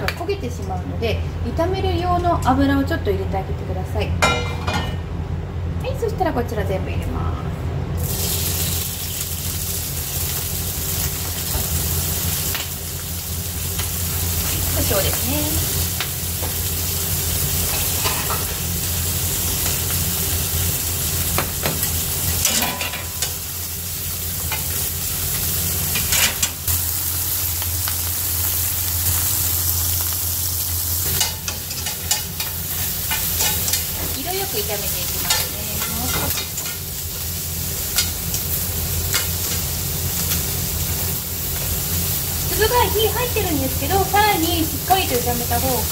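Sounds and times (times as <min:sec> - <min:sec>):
steady low hum: 0:00.0 - 0:45.9
food sizzling in hot oil: 0:08.0 - 0:45.9
utensils clicking against pan: 0:21.4 - 0:23.4, 0:31.0 - 0:36.9, 0:37.9 - 0:38.5, 0:39.1 - 0:40.5.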